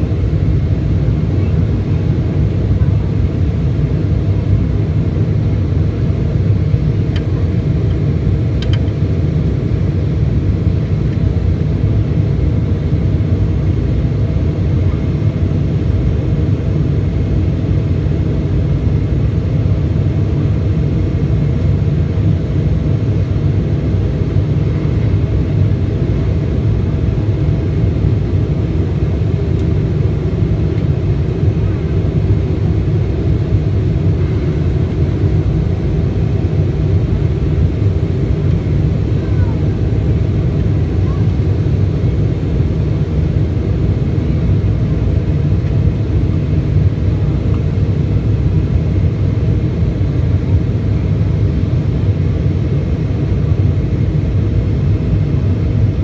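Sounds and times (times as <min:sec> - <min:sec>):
airliner cabin engine rumble: 0:00.0 - 0:56.0.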